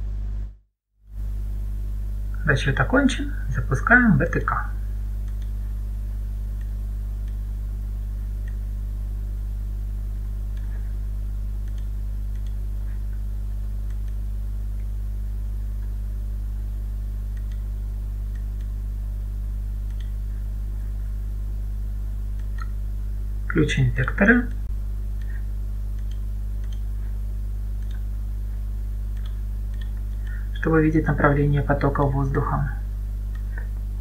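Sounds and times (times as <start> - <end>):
steady low hum: 0.0 - 34.0
mouse clicks: 5.2 - 5.6, 11.6 - 12.6, 17.3 - 17.7, 19.9 - 20.2, 26.0 - 26.9, 27.8 - 28.1, 29.2 - 30.4.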